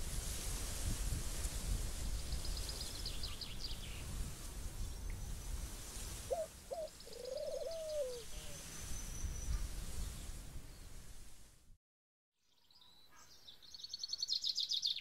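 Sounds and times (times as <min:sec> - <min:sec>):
lower rising bird call: 0:06.3 - 0:09.6.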